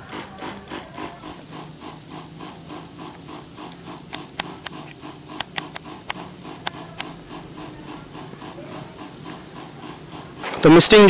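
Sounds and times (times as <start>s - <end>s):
water pump humming and pulsing: 0.0s - 11.0s
sharp clicks: 3.1s - 7.2s.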